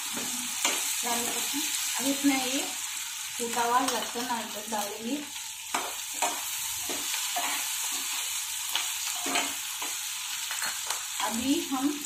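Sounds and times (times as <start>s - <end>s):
potatoes and onions sizzling in oil: 0.0s - 12.0s
spatula scraping and knocking pan: 5.7s - 10.9s.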